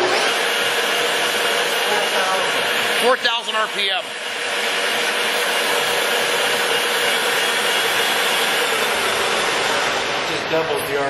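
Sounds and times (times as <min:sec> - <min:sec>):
lathe motor whirring: 0:00.0 - 0:11.0.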